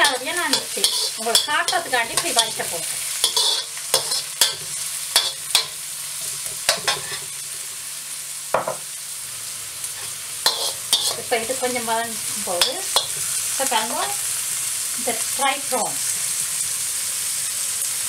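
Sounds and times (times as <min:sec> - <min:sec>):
metal spoon scraping pan: 0:00.0 - 0:05.8, 0:06.7 - 0:07.3, 0:10.0 - 0:11.4, 0:12.5 - 0:13.3
food sizzling in hot oil: 0:00.0 - 0:18.0.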